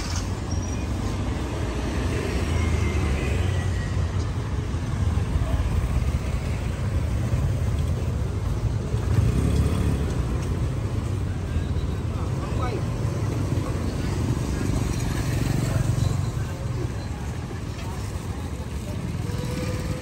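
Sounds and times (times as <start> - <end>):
motorbikes and scooters passing: 0.0 - 20.0.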